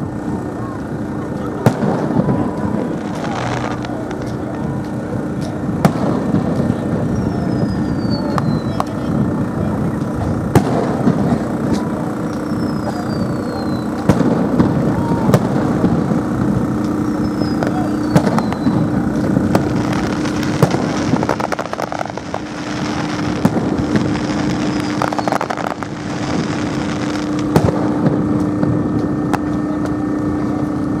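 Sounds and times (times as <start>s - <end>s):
fireworks bangs: 0.0s - 31.0s
falling firework whistle: 6.9s - 9.2s, 12.2s - 16.1s, 17.0s - 29.5s.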